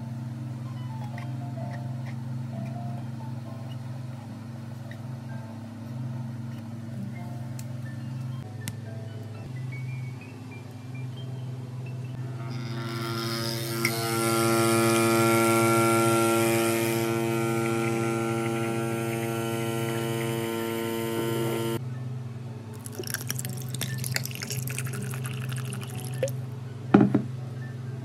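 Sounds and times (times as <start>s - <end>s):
coffee machine pump humming: 12.4s - 21.8s, 22.7s - 27.2s
ice crackling and clinking: 22.8s - 26.3s
liquid poured over ice: 22.8s - 26.4s.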